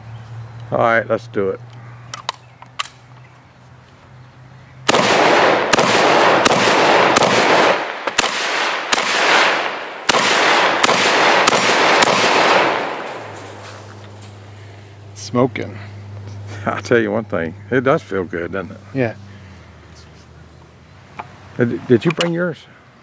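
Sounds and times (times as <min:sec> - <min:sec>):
gun handling clicks: 0:01.6 - 0:03.3, 0:22.0 - 0:22.4
shotgun shots echoing: 0:04.9 - 0:13.6.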